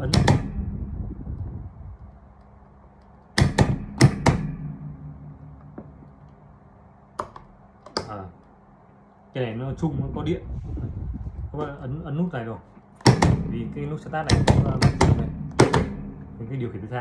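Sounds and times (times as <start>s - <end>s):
faint steady hum: 0.0s - 17.0s
electrical contactors clacking: 12.8s - 17.0s.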